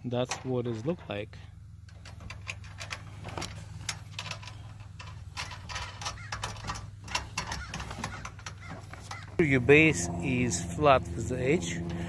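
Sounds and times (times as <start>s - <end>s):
steady low hum: 0.0s - 12.0s
clicks and knocks of metal bars: 1.8s - 9.5s.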